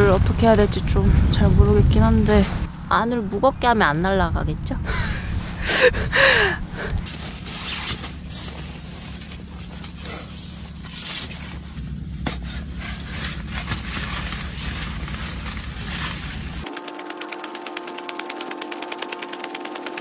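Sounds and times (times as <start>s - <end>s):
low wind rumble: 0.0s - 7.4s
nylon fabric rustling: 7.0s - 16.7s.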